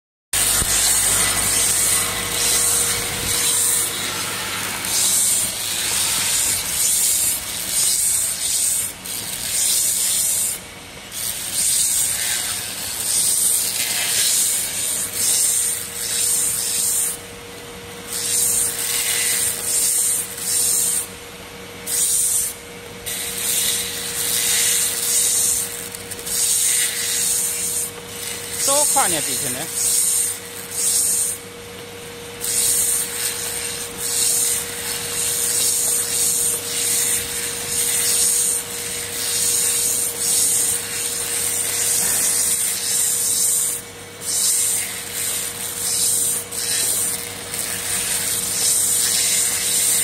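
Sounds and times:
machine motor whine: 0.4s - 10.6s.

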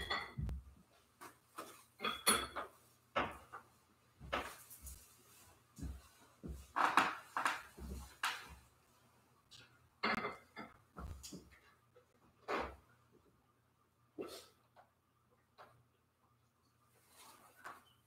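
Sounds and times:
metal and glass clinking: 0.0s - 0.5s, 2.0s - 2.7s, 10.0s - 10.8s.

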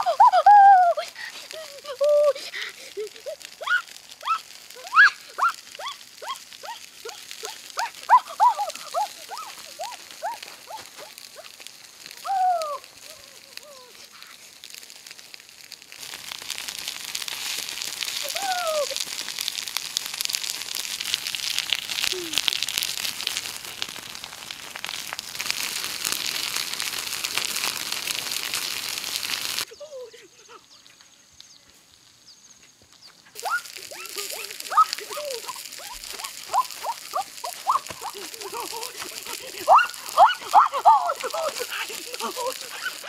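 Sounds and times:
meat sizzling on a hot griddle: 0.0s - 43.0s
wood fire crackling: 0.0s - 43.0s
short falling calls: 33.3s - 43.0s.

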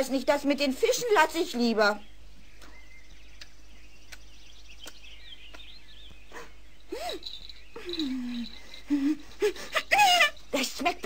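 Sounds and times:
high chirps of birds or insects: 0.0s - 11.0s
faint clicks: 3.4s - 5.7s.

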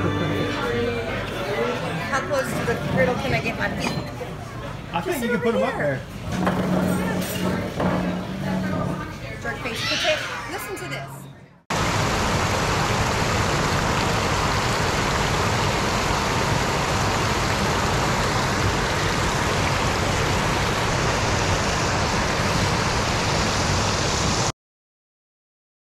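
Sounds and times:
whitewater roar: 11.7s - 24.5s.

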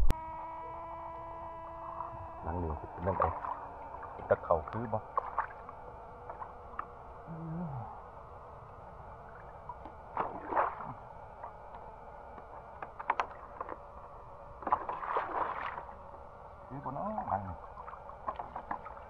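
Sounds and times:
water sloshing and splashing: 3.0s - 7.0s, 9.2s - 11.6s, 14.6s - 16.1s, 17.6s - 19.0s.

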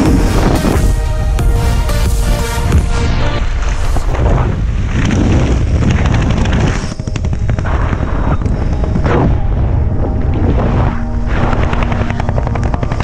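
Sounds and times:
wind buffeting microphone: 3.5s - 12.8s.

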